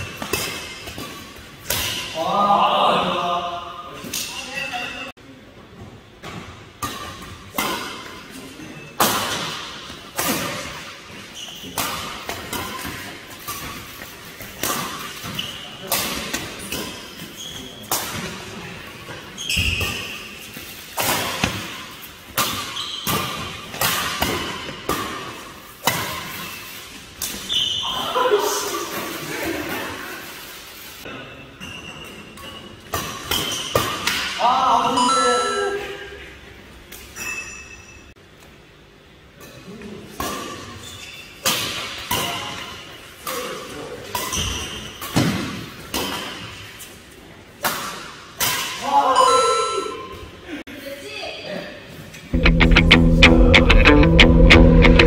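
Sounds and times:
shoes squeaking on court: 11.1 - 23.8, 26.1 - 28.0, 31.6 - 34.0, 44.2 - 45.3.

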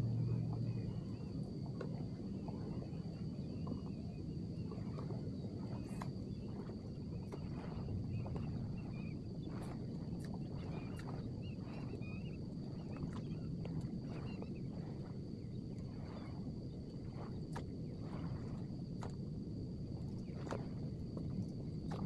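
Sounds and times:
soft ticks and splashes: 0.0 - 22.0
thin steady high whine: 0.0 - 22.0
wind and water wash: 0.0 - 22.0
faint bird chirps: 5.7 - 9.8, 10.4 - 14.7.

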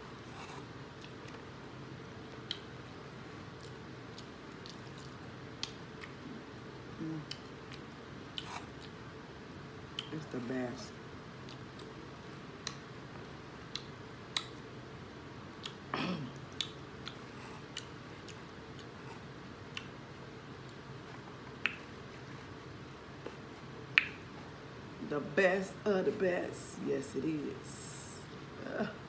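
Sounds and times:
chewing: 0.2 - 1.5, 3.3 - 6.4, 7.2 - 9.0, 11.4 - 14.6, 16.4 - 20.0
mouth clicks and smacks: 2.4 - 2.7, 3.5 - 6.3, 9.9 - 10.2, 12.6 - 12.9, 13.6 - 14.7, 15.6 - 20.0, 21.5 - 22.1, 23.3 - 24.4.

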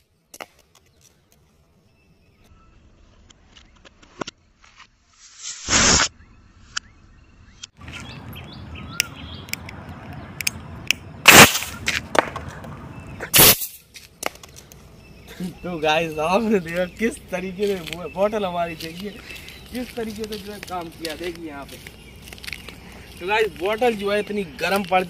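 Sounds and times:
short loud bursts: 11.2 - 11.8, 13.3 - 13.8.

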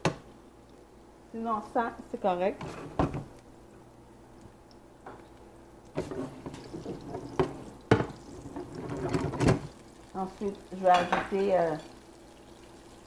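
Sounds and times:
oil sizzling in frying pan: 5.9 - 13.0.

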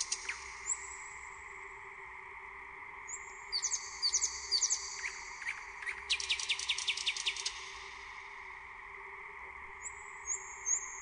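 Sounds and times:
nightingale singing: 0.0 - 1.0, 3.1 - 7.6, 9.8 - 11.0
faint steady hum: 0.0 - 11.0.

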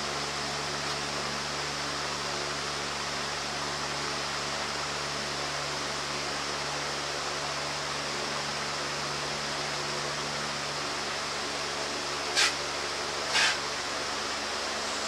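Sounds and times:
steady hiss: 12.1 - 13.7.

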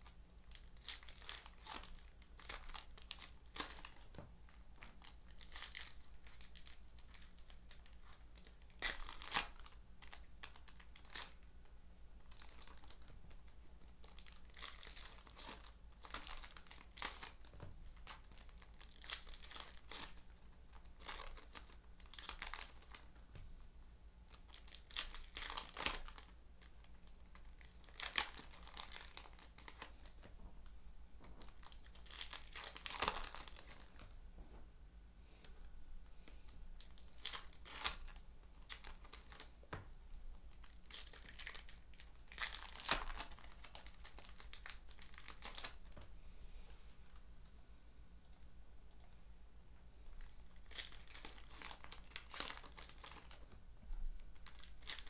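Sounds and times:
foil packs crinkling and tearing: 0.0 - 11.5, 12.3 - 13.1, 13.9 - 23.1, 24.3 - 30.3, 31.4 - 34.1, 36.8 - 39.5, 40.5 - 46.0, 50.2 - 53.4, 54.4 - 55.0.

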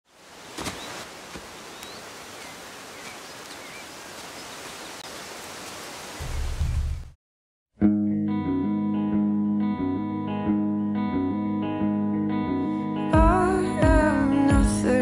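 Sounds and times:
faint bird chirps: 1.6 - 5.3.

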